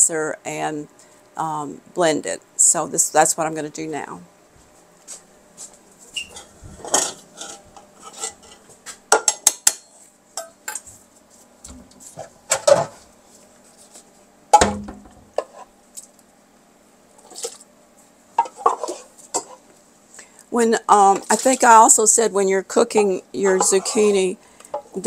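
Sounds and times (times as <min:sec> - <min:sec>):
utensils clinking against pots: 0:23.5 - 0:25.0.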